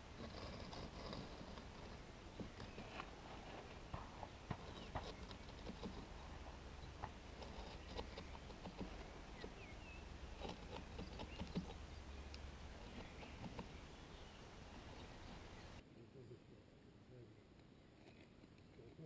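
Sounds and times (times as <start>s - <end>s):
bird chirp: 2.0s - 16.4s.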